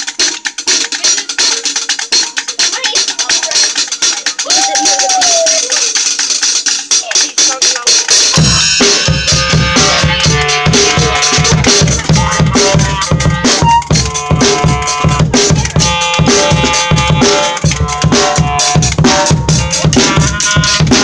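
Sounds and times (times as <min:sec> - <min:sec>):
bass drum beats: 0:00.0 - 0:21.0.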